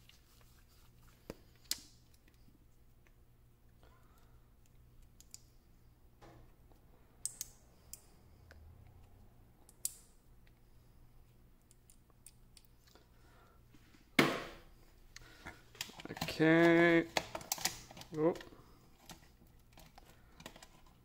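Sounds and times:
metal cells and magnets clicking: 7.2s - 8.1s.

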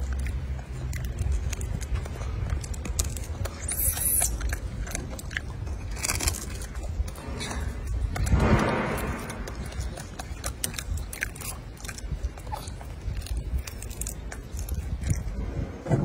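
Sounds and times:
monkey chewing: 0.0s - 15.8s
low rumble: 4.3s - 16.0s.

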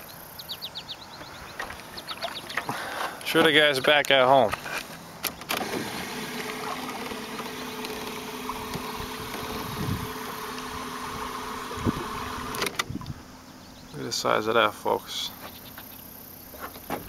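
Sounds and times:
electric motor humming and whining: 5.4s - 13.1s.

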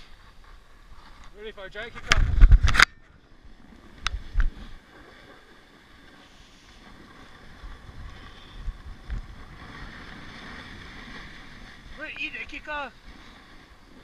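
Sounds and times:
snowboard scraping on snow: 3.5s - 14.0s.

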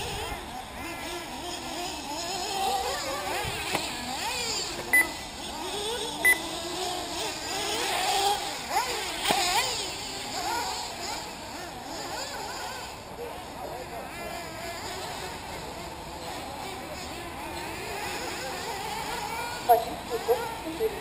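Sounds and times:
rc buggy engines buzzing: 0.0s - 21.0s
short electronic beeps: 4.9s - 5.2s, 6.2s - 6.4s.

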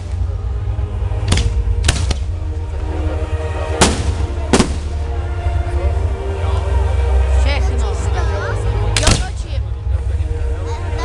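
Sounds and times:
steady low rumble: 0.0s - 11.0s
fireworks bursting: 3.8s - 5.0s.

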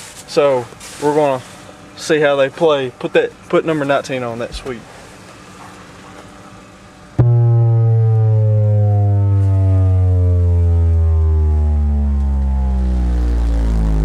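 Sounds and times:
cabin hum: 6.5s - 14.0s
bass tone falling in pitch: 7.2s - 14.0s.

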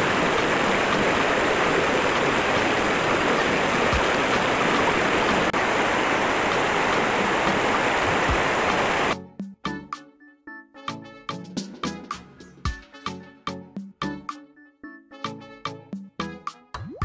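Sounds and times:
river water rushing over boulders: 0.0s - 9.2s.

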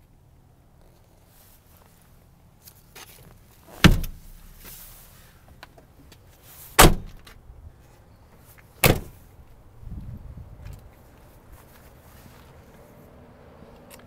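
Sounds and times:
truck doors slamming: 3.7s - 4.3s, 6.8s - 7.4s, 8.8s - 9.2s.

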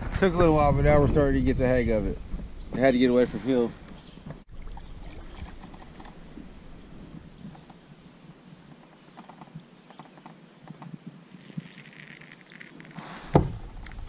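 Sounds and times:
faint water patter: 4.3s - 14.0s
small bird chirping: 5.8s - 10.8s, 11.4s - 14.0s.

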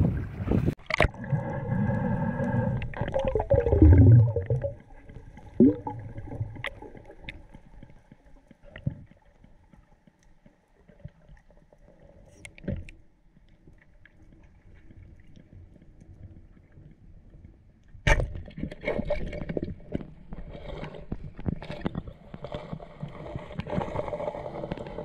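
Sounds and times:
water gurgling against hull: 0.0s - 7.8s.

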